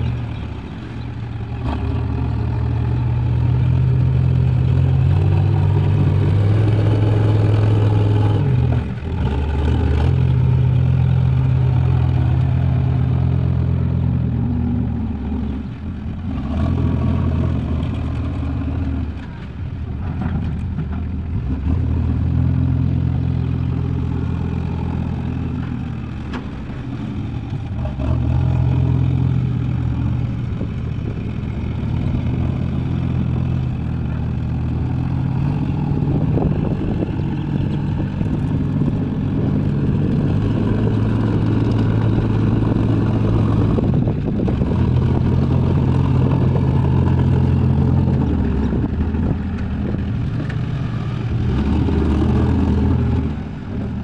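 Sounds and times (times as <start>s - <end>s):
diesel engines revving: 0.0s - 54.0s.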